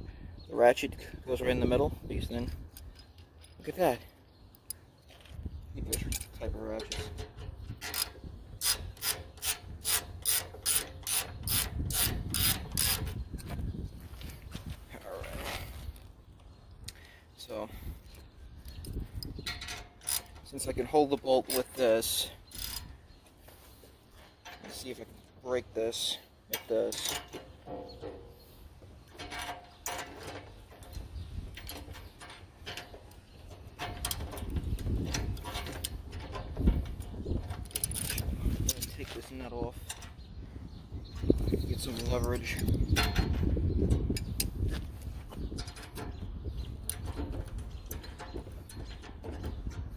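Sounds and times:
low rumbling handling noise: 26.6s - 49.9s.

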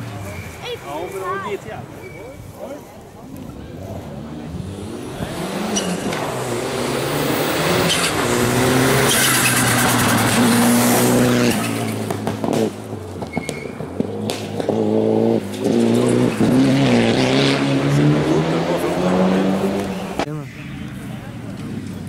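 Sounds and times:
rally car engine revving: 3.6s - 20.4s.

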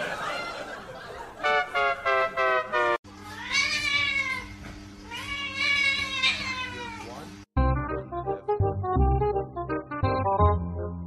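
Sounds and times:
cat meowing: 3.3s - 7.2s
cat yowling: 3.3s - 7.2s.

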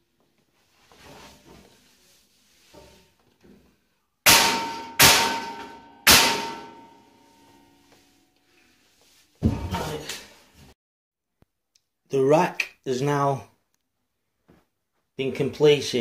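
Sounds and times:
ringing strikes on steel: 4.3s - 7.2s.

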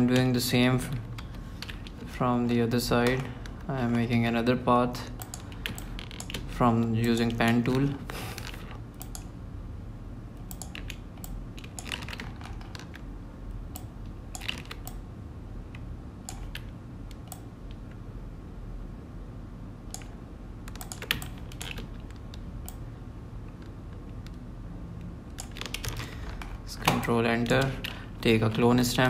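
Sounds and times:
steady low hum: 0.0s - 29.0s
computer mouse and keyboard clicks: 5.2s - 9.3s, 10.4s - 13.1s, 13.7s - 15.0s, 16.3s - 17.9s, 19.9s - 22.8s, 25.3s - 28.6s.

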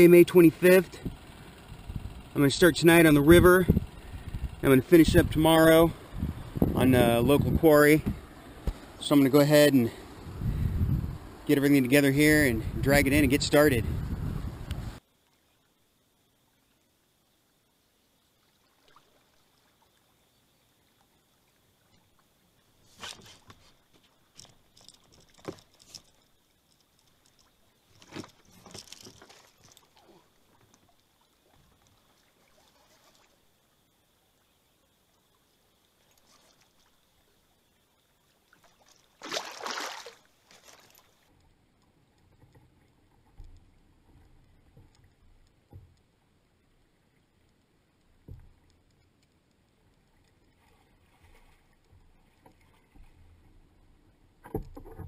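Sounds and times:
fishing tackle rustles and clicks: 22.8s - 32.1s, 38.7s - 46.0s.

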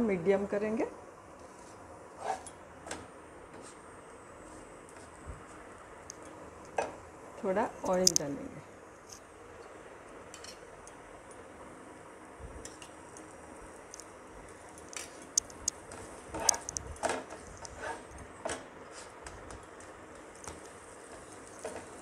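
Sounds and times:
spatula scraping iron griddle: 1.6s - 2.5s, 17.7s - 18.1s
oil sizzling on griddle: 12.6s - 22.0s.

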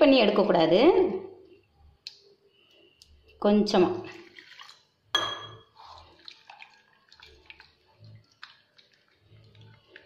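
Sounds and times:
wet sloshing and squelching: 4.1s - 5.0s, 5.8s - 10.0s.

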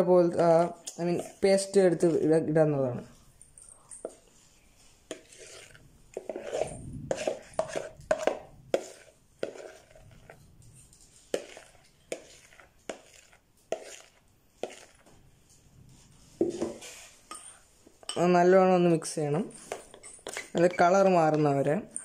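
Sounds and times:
spoon scraping plastic bowl: 0.4s - 2.5s, 3.6s - 15.2s, 15.9s - 17.6s, 19.5s - 22.0s.

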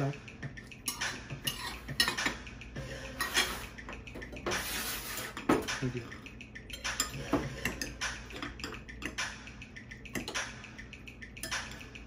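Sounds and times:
cutlery clinking on plates: 0.8s - 2.4s, 3.2s - 5.8s.

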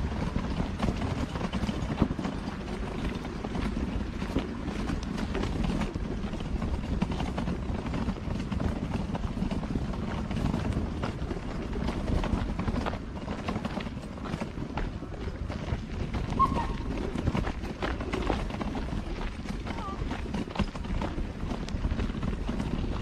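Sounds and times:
footsteps on gravel: 10.8s - 23.0s.

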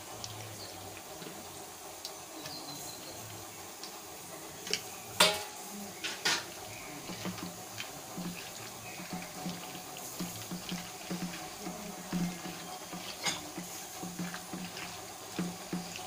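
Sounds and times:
clanks against steel bowl: 4.7s - 16.0s
wet squishing of chicken: 5.9s - 16.0s.

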